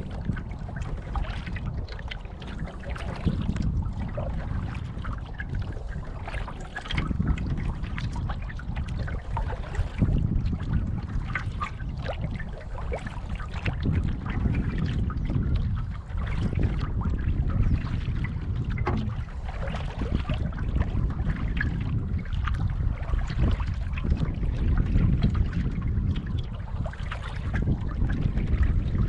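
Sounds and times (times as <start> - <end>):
water lapping against canoe: 0.0 - 29.0
wind rumble on microphone: 0.0 - 29.0
small splashes: 18.8 - 21.6.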